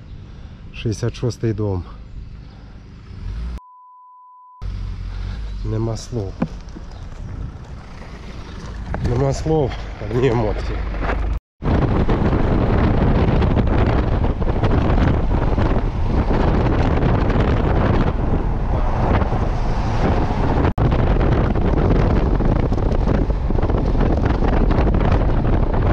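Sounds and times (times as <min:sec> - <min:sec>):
road and engine rumble: 0:00.0 - 0:03.7, 0:04.6 - 0:25.9
wind buffeting microphone: 0:06.1 - 0:25.9.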